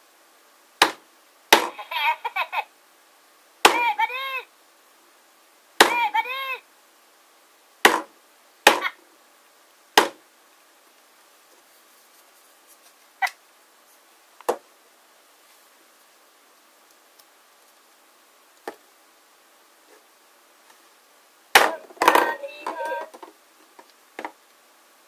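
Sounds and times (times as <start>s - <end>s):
high warbling toy sound: 21.6s - 23.1s
plastic toys being handled: 21.6s - 24.5s.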